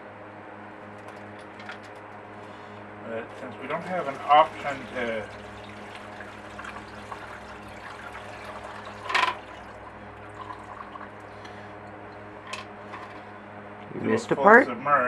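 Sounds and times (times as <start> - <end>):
low steady hum: 0.0 - 15.0
liquid dripping into plastic tub: 3.6 - 12.3
liquid splash: 3.6 - 12.3.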